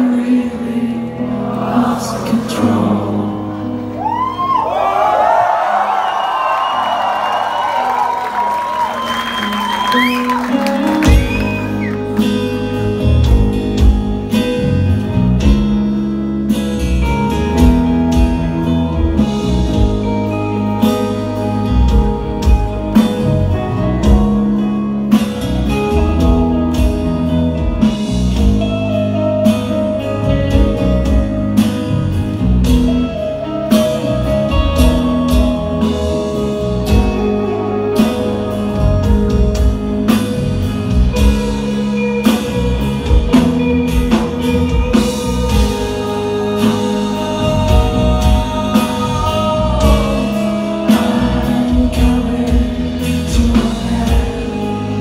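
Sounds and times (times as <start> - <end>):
electric guitar: 0.0 - 55.0
bass guitar: 7.9 - 55.0
steady drum beat: 10.0 - 15.9, 38.0 - 55.0.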